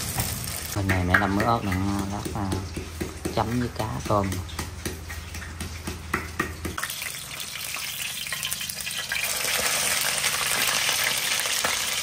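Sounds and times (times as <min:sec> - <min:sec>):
food sizzling in hot oil: 0:00.0 - 0:02.5, 0:06.7 - 0:12.0.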